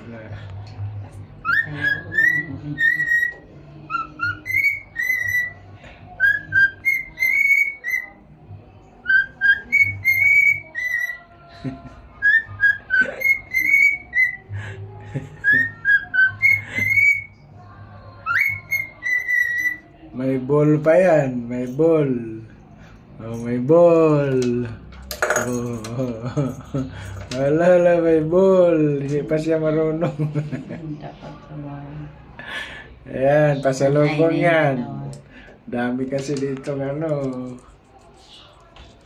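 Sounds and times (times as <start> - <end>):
cockatiel whistling: 1.4 - 5.6, 6.2 - 8.2, 9.0 - 11.3, 12.2 - 14.5, 15.4 - 17.4, 18.2 - 19.9.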